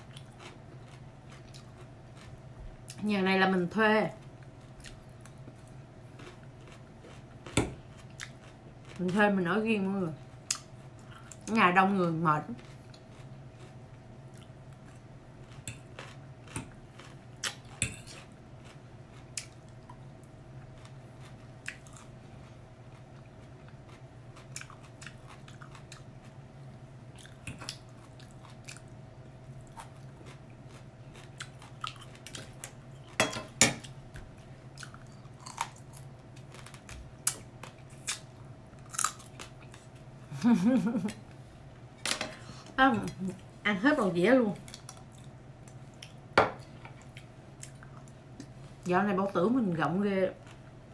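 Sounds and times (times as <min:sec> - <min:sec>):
person chewing food: 0:00.0 - 0:03.0, 0:04.3 - 0:09.0, 0:12.6 - 0:40.1, 0:44.6 - 0:48.7
low steady hum: 0:00.0 - 0:50.9.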